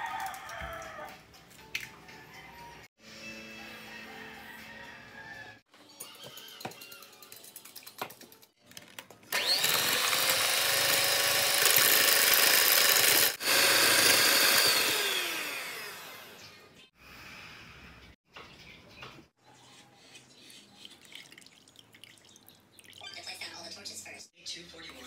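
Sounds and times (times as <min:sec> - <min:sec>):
electric hand mixer beating batter: 0:09.3 - 0:16.6.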